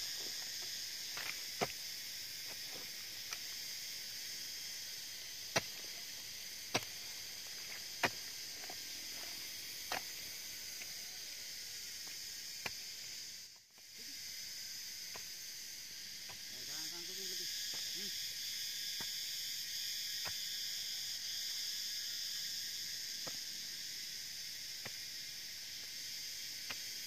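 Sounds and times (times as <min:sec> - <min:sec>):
insects chirring: 0:00.0 - 0:27.0
hoe chopping into soil: 0:01.1 - 0:01.9, 0:05.4 - 0:10.3.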